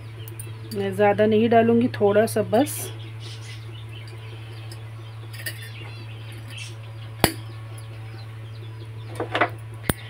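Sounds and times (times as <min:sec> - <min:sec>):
steady low hum: 0:00.0 - 0:10.0
faint bird chirps: 0:02.9 - 0:09.3.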